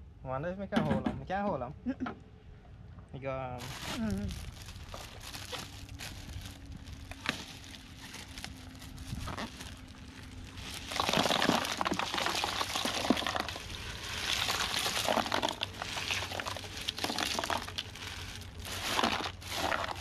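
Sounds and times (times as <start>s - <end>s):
plastic bag crinkling: 3.6s - 20.0s
ice cubes clattering: 10.5s - 20.0s.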